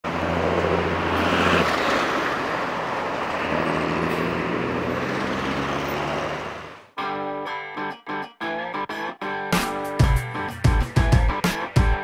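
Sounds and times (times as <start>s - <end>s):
bus and truck engines humming: 0.0s - 7.0s
passing vehicles: 0.0s - 7.0s.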